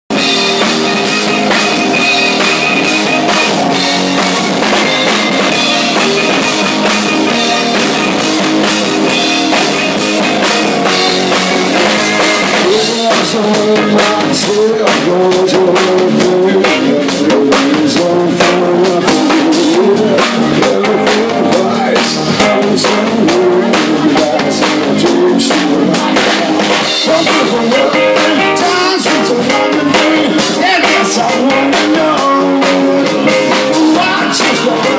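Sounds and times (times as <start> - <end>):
bass guitar: 0.0 - 34.9
drum kit: 0.1 - 34.9
electric guitars: 0.1 - 34.9
male lead vocal: 12.5 - 34.9.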